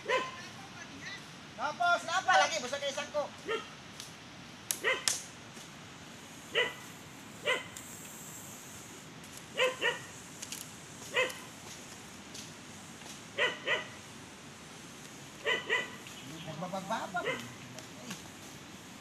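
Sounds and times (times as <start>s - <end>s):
dog barking: 0.0s - 0.4s, 3.4s - 3.7s, 4.8s - 5.1s, 6.5s - 6.8s, 7.4s - 7.7s, 9.6s - 10.1s, 11.1s - 11.5s, 13.4s - 14.0s, 15.4s - 16.0s, 17.2s - 17.6s.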